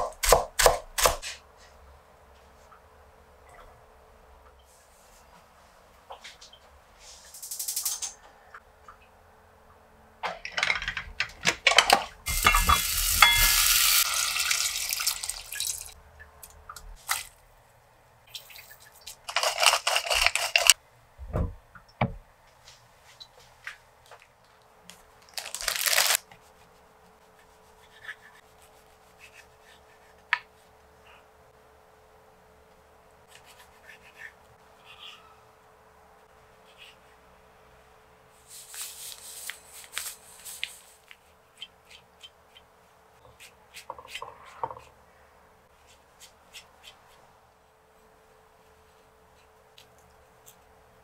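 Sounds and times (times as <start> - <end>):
kitchen tap running: 12.3 - 16.0
low thuds: 21.2 - 22.3.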